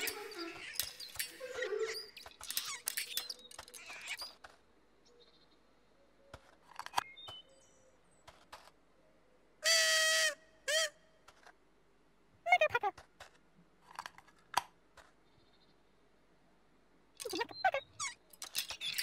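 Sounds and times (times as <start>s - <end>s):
push cart rattling: 0.0s - 3.8s.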